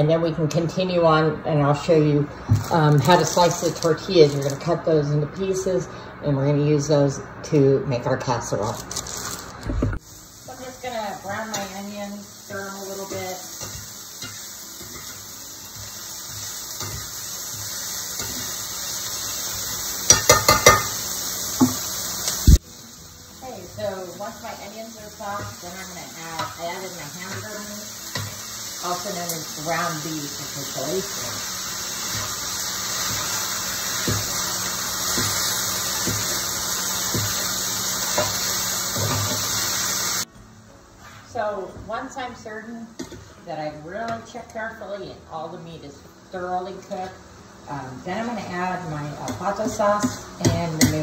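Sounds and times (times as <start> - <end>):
onions sizzling in hot oil: 2.4 - 4.6, 8.6 - 40.3, 45.6 - 51.0
metal spatula striking pan: 20.1 - 21.0.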